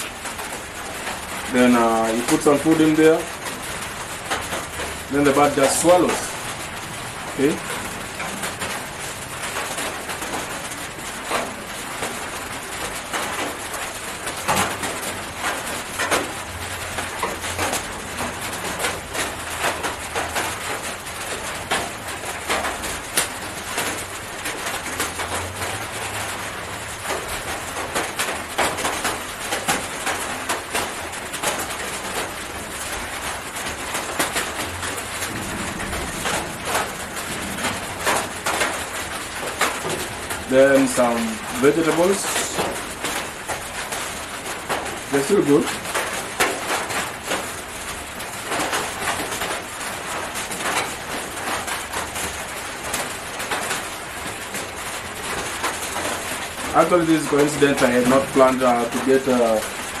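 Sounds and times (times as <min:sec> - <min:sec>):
steady hiss: 0:33.9 - 0:45.8, 0:56.0 - 0:59.8.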